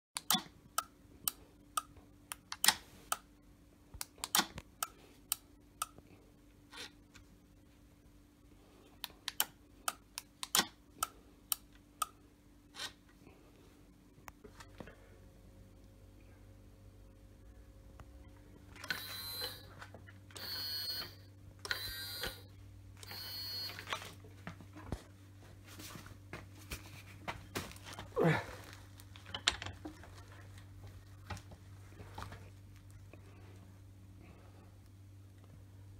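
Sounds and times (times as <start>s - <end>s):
faint steady hum: 0.2s - 35.9s
small motor whirring: 20.4s - 23.8s.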